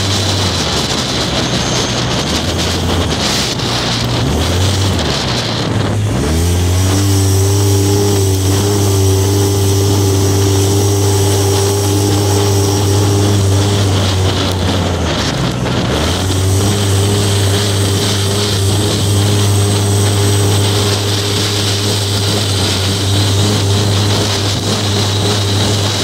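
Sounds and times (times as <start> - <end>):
engine running hard under load: 0.0 - 26.0.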